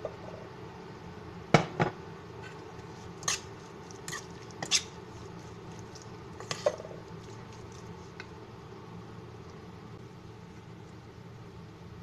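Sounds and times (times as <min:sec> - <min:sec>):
metal spoon scraping steel bowl: 0:03.2 - 0:04.9.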